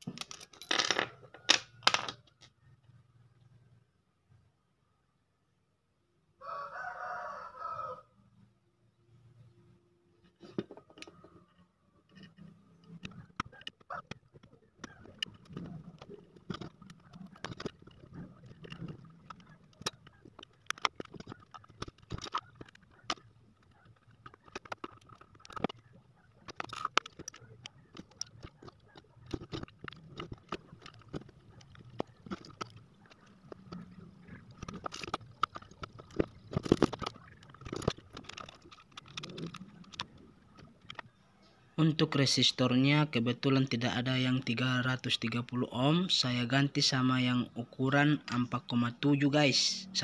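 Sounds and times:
clicks taps and light scrapes: 10.2s - 41.1s.

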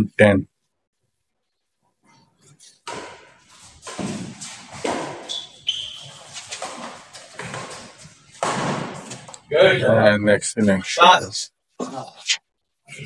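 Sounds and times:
feet moving on court: 2.7s - 9.5s
rackets hitting shuttlecock: 2.8s - 9.5s
shoe squeaks: 3.2s - 8.4s.

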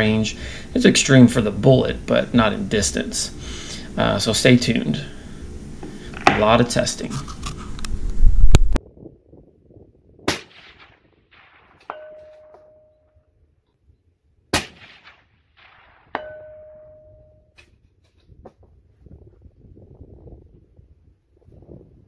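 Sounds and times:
rifle shots: 10.3s - 12.4s, 14.5s - 16.3s
bullet clanging on steel plate: 11.8s - 13.1s.

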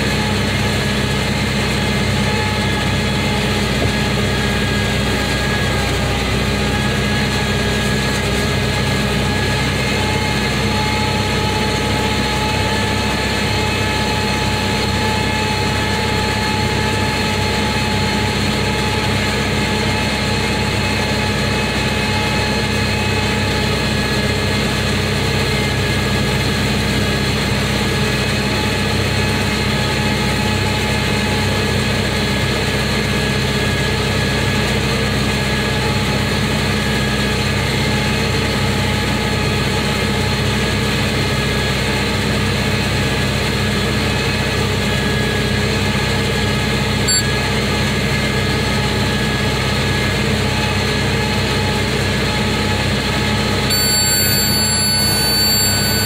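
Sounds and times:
tractor engine humming: 0.0s - 33.6s.

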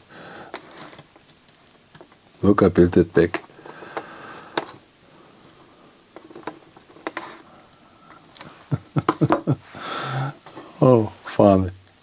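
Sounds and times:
small clicks and taps: 0.5s - 2.2s.

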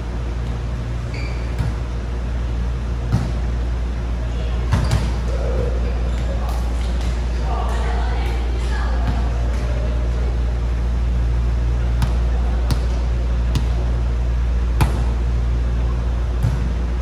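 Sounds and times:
steady low hum: 0.0s - 17.0s
volleyball smacks in echoing hall: 1.4s - 2.0s, 3.0s - 3.6s, 4.5s - 10.1s, 11.8s - 14.0s, 14.7s - 15.4s, 16.2s - 17.0s.

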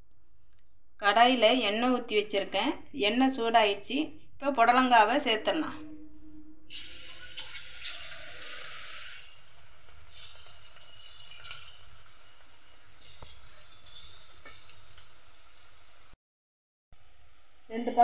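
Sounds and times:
batter slices sizzling in hot oil: 6.7s - 16.2s.

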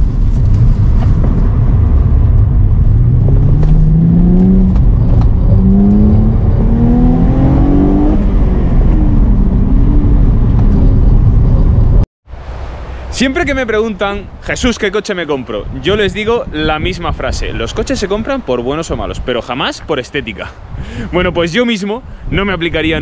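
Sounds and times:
car engine accelerating hard: 0.3s - 12.0s.

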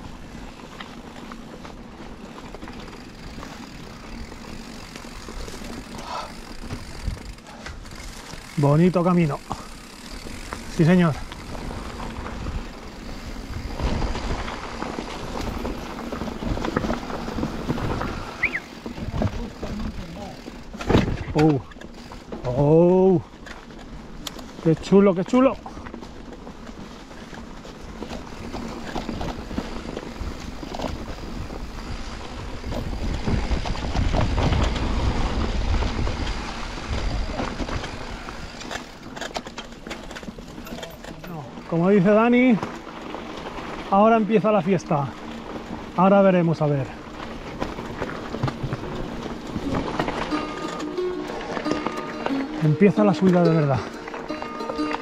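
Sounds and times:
bike rattling and knocking: 0.0s - 55.0s
bike tyres rumbling on dirt: 0.0s - 55.0s
wind on microphone: 31.4s - 38.5s.

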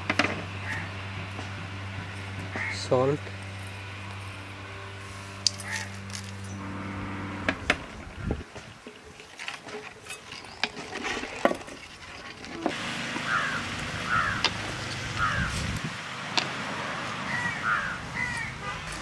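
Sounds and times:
low steady hum: 0.0s - 19.0s
bird calling: 0.6s - 1.0s, 12.6s - 15.8s, 17.2s - 18.8s.

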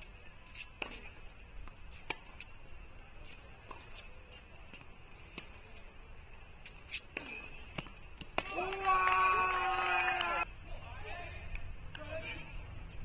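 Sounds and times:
racket hitting tennis ball: 0.5s - 2.5s, 6.6s - 8.9s.

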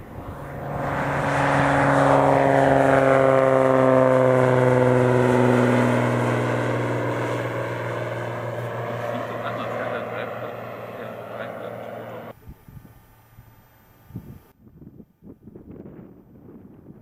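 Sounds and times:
propeller plane passing: 0.0s - 12.4s.

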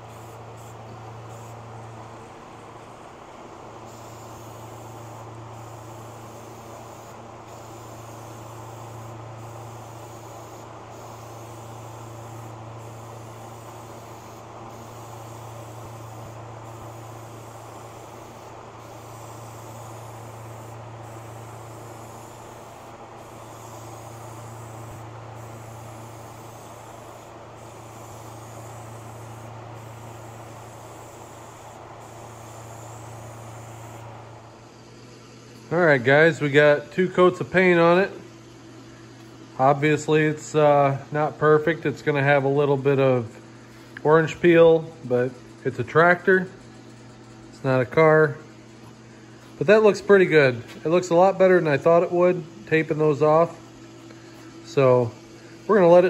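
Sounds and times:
spray paint can hissing: 0.0s - 1.6s, 3.9s - 34.3s.

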